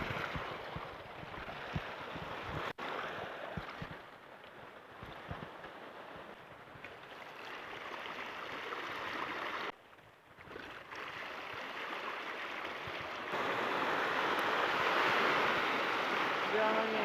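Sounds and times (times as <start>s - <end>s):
surf washing over rocks: 11.0s - 17.0s.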